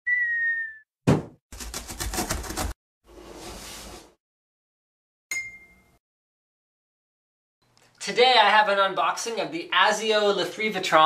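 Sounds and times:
cartoon whistle dipping in pitch: 0.0 - 0.8
sharp thump: 1.1 - 1.4
bright ringing ping: 5.3 - 6.0.

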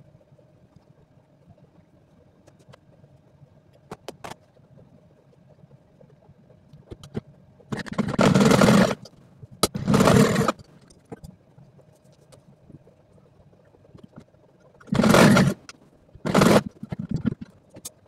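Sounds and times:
sewing machine stitching: 7.7 - 10.7, 14.9 - 17.4.

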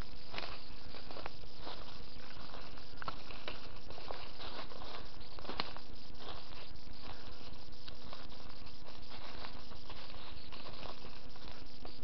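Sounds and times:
faint steady hum: 0.0 - 12.0
footsteps in dry leaves: 0.0 - 12.0.

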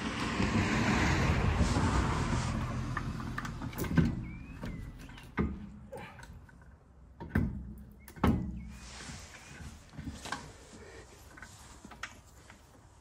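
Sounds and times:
rushing background noise: 0.0 - 5.2
wheel bolts knocking and clicking: 3.0 - 8.6.

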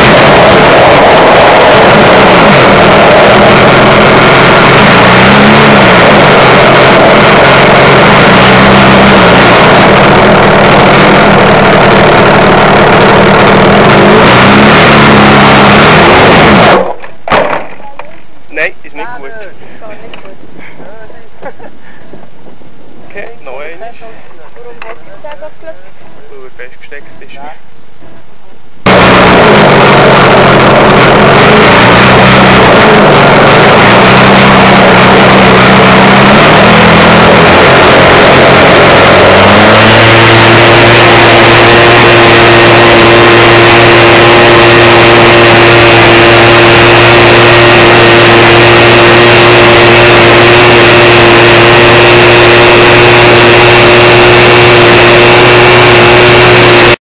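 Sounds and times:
model airplane motor and propeller: 28.9 - 57.0.

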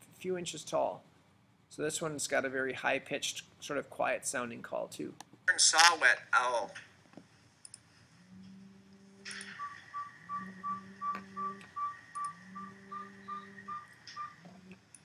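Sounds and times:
owl whistled toots: 9.3 - 14.5.

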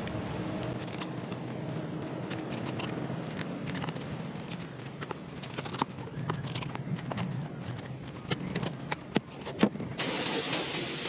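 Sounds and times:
knife cutting and scraping fish: 0.0 - 10.0
loud steady hiss: 10.0 - 11.0.

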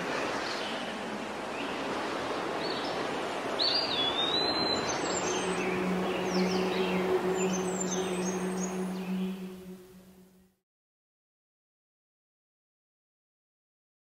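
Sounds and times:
low steady hum: 4.4 - 10.5.

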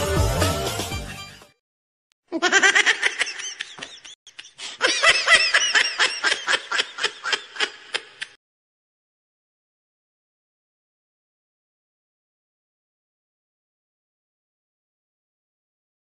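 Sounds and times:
high laugh-like ha-ha notes: 2.3 - 8.4.

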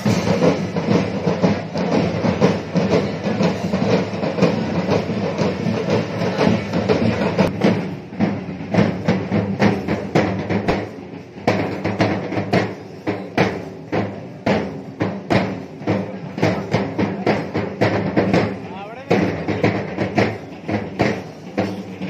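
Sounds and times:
drum ensemble playing loud: 0.0 - 22.0.

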